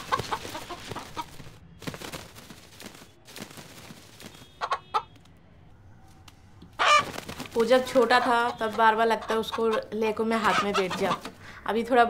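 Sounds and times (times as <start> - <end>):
rooster clucking: 0.0 - 1.4, 4.6 - 5.1, 6.8 - 7.1, 8.0 - 11.4.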